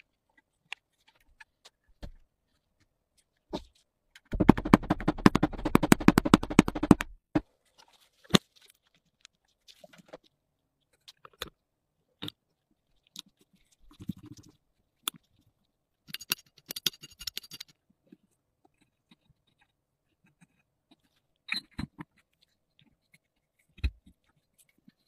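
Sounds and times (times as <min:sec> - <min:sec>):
small parts clicking and knocking: 0:12.2 - 0:25.0.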